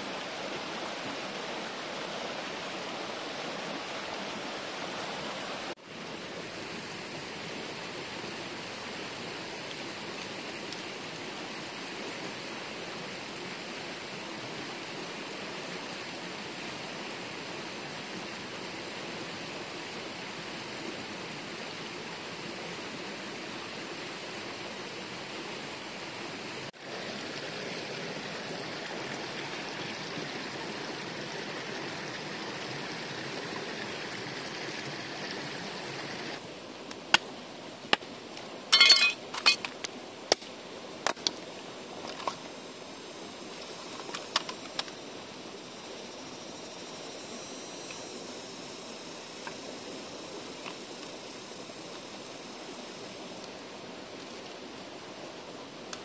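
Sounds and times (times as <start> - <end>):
flowing water rushing: 0.0 - 56.0.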